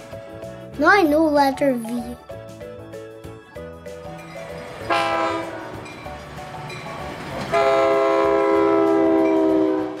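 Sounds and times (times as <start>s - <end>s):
toy train horn toot: 4.9s - 5.6s, 7.5s - 10.0s.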